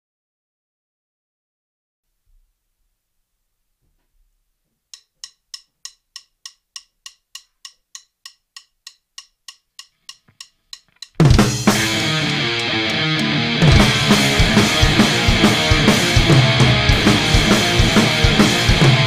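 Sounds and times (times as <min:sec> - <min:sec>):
metronome clicking: 0:04.9 - 0:18.8
drums: 0:11.0 - 0:19.0
electric guitar: 0:11.4 - 0:19.0.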